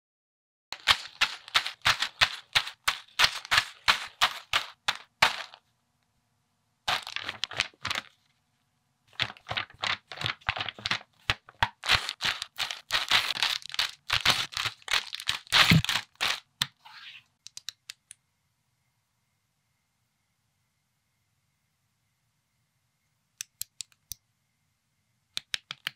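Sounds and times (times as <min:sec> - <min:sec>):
plastic bags and paper crinkling: 0:00.8 - 0:05.6, 0:06.9 - 0:08.3, 0:09.1 - 0:16.6.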